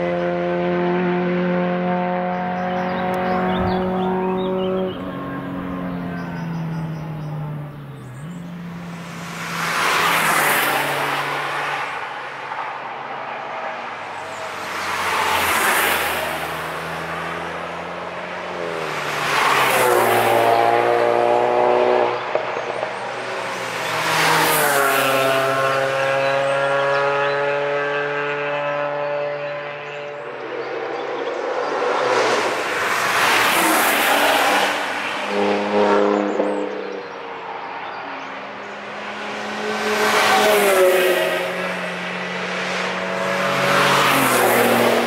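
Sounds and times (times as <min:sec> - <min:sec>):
race cars passing at speed: 0:00.0 - 0:45.0.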